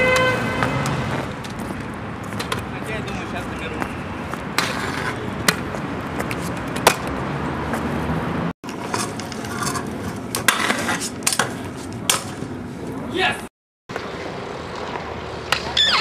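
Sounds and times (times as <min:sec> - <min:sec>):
scooter wheels rolling on stone: 0:00.8 - 0:03.4, 0:04.3 - 0:07.9, 0:08.7 - 0:12.4
scooter clacking and scraping stone: 0:04.5 - 0:07.1, 0:08.6 - 0:12.5.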